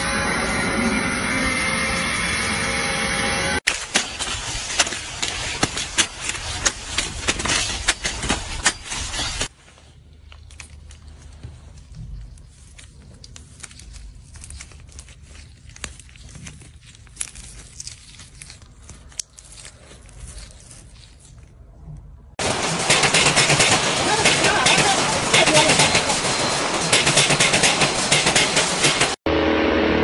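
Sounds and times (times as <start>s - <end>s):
corn ears cut with a cleaver: 3.7s - 9.5s
brittle candy shells crackling: 10.1s - 21.8s.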